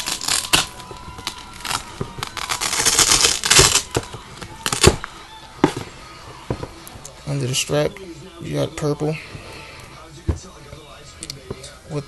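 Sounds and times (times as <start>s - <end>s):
hook-and-loop strap ripping: 0.0s - 5.0s.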